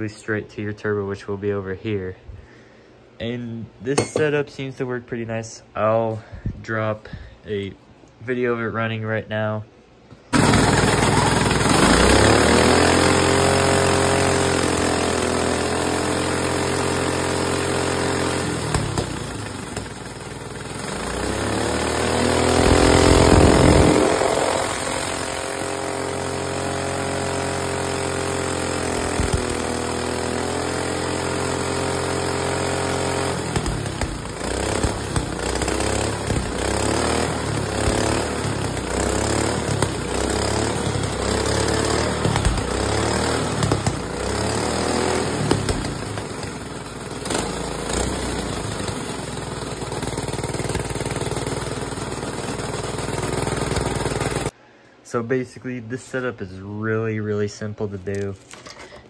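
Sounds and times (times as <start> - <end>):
small engine revving: 10.3 - 54.5.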